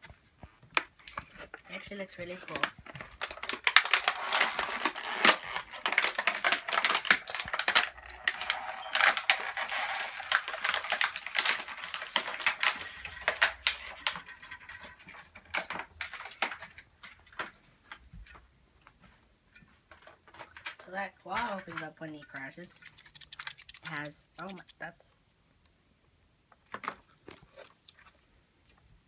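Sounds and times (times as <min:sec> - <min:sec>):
plastic packaging crinkling: 0:00.9 - 0:17.5, 0:21.4 - 0:25.0.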